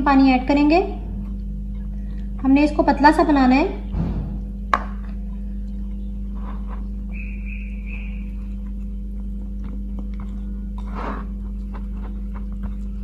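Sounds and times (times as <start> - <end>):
steady low hum: 0.0 - 13.0
whisk scraping a ceramic plate: 6.4 - 6.9, 10.8 - 12.2.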